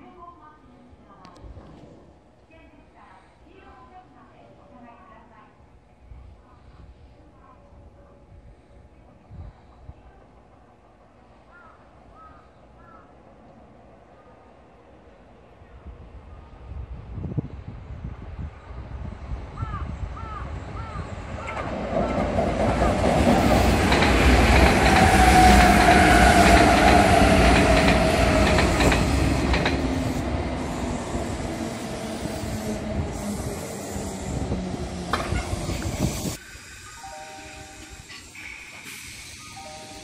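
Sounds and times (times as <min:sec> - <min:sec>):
train wheels clattering on rails: 0:21.3 - 0:30.4.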